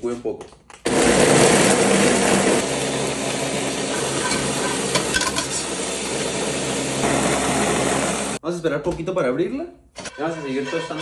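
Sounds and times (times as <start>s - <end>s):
blender motor humming: 0.9s - 8.4s.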